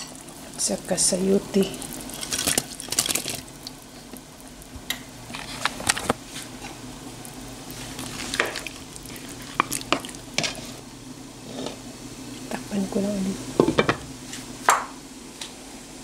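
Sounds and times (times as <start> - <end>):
broth boiling and bubbling: 0.0 - 16.0.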